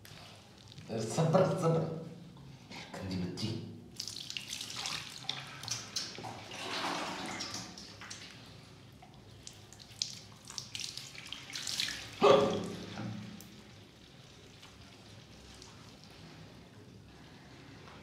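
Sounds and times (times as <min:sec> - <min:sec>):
water splashing in a washbasin: 0:03.8 - 0:18.0
water dripping: 0:03.9 - 0:06.6, 0:07.3 - 0:17.3.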